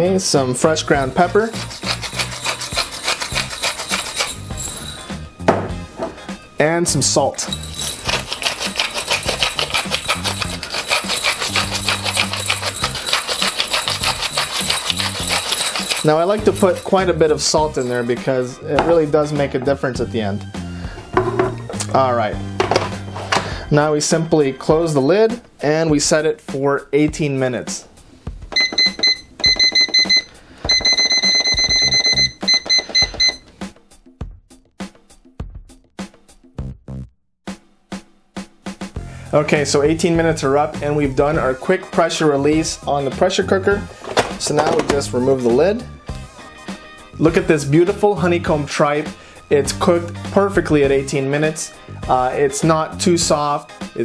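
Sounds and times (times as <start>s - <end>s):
soft background music: 0.0s - 34.0s, 37.5s - 54.0s
salt grinder grinding clicks: 1.6s - 4.6s, 7.6s - 16.8s
quick high electronic beeps: 28.6s - 33.4s.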